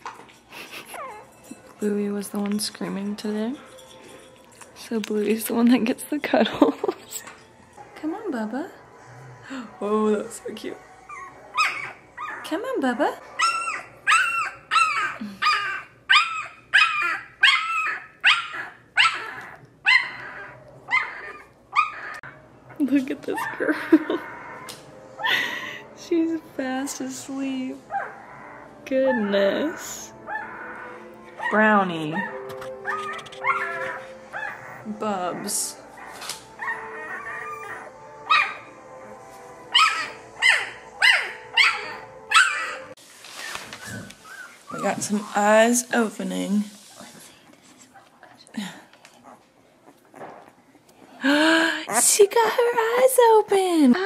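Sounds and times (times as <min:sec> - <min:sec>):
puppy crying: 0:00.7 - 0:01.4, 0:10.4 - 0:12.6, 0:13.2 - 0:22.4, 0:23.4 - 0:25.4, 0:27.9 - 0:38.7, 0:39.7 - 0:43.0.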